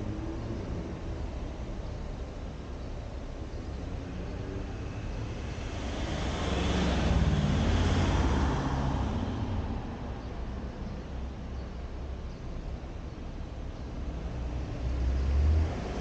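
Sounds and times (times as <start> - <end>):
car driving past: 4.2 - 9.9.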